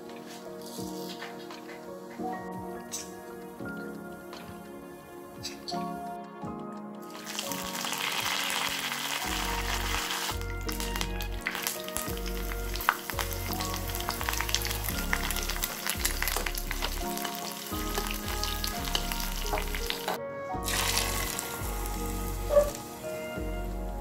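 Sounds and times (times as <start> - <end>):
hot oil sizzling and crackling: 7.1 - 24.0.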